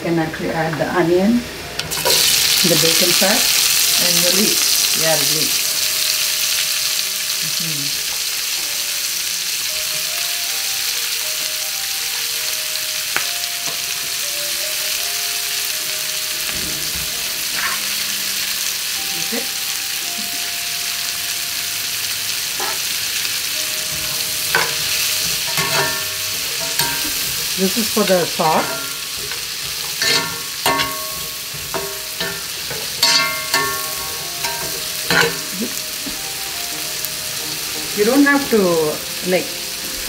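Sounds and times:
vegetables sizzling in a pan: 0.2s - 40.0s
metal utensil clicking on pan: 24.5s - 27.3s, 28.5s - 35.6s.

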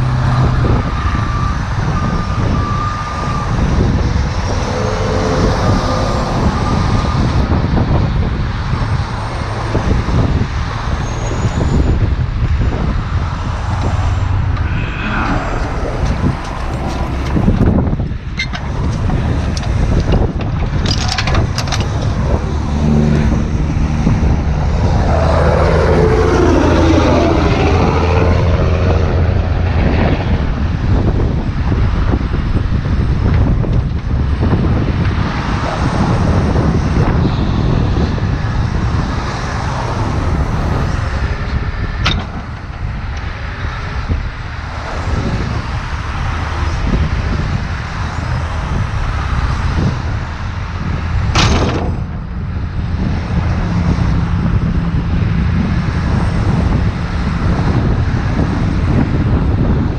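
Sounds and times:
wind buffeting microphone: 0.0s - 59.9s
diesel truck engine running: 12.1s - 35.0s.

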